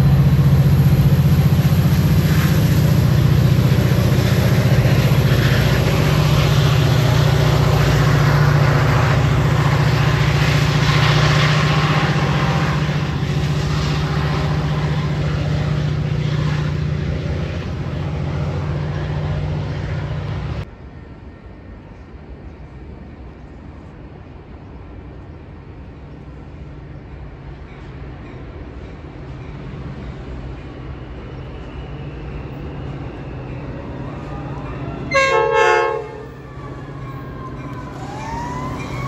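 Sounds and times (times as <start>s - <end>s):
diesel locomotive engine drone: 0.0s - 39.0s
outdoor background: 0.0s - 39.0s.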